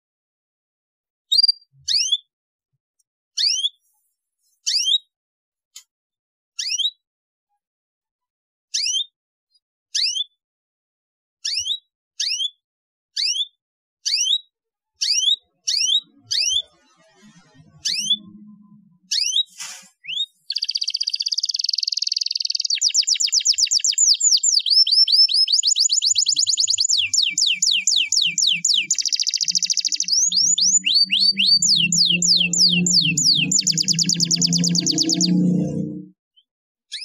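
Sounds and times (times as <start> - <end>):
canary singing: 15.0 - 36.1.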